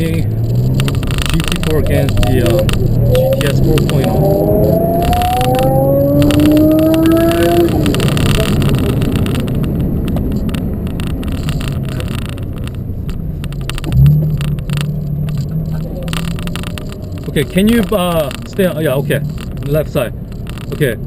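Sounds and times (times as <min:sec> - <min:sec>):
car engine accelerating: 0:00.0 - 0:21.0
car engine revving: 0:00.0 - 0:21.0
tyre and road noise: 0:00.0 - 0:21.0.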